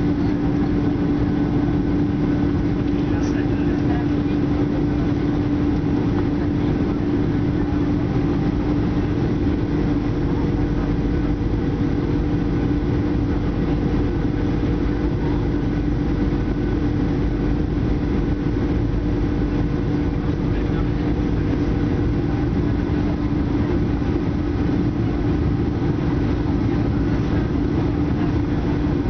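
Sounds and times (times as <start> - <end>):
jet engine drone: 0.0 - 29.0
steady hum tone: 0.0 - 29.0.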